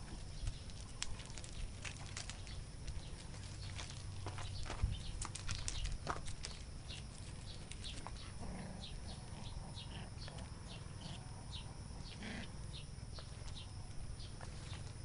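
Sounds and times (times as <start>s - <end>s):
stones crunching: 0.0s - 8.2s.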